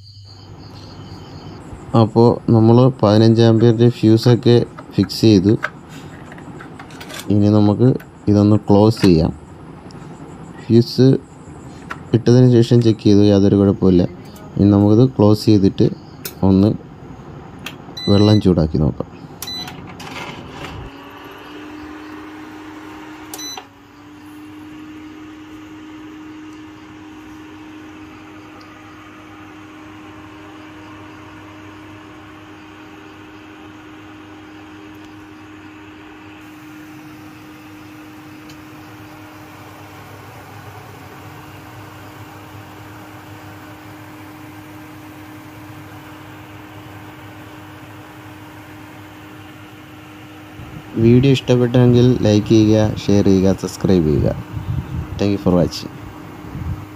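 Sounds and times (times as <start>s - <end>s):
cooker humming: 0.0s - 56.9s
cooling fan whirring: 0.0s - 56.9s
control panel beeps: 17.9s - 18.6s, 19.4s - 19.8s, 23.3s - 23.7s.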